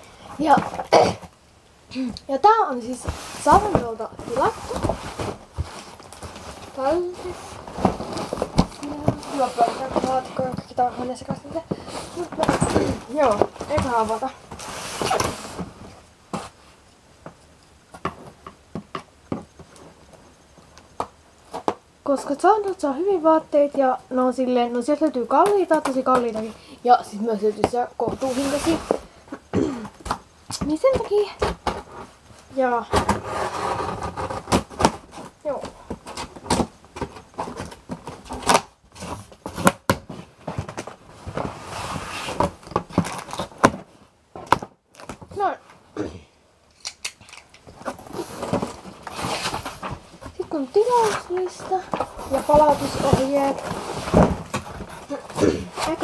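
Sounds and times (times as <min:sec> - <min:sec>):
cardboard knocks and scrapes: 0:03.0 - 0:16.6, 0:27.6 - 0:29.0, 0:32.8 - 0:45.5, 0:47.8 - 0:56.0
scissors snipping packing tape: 0:46.7 - 0:47.6.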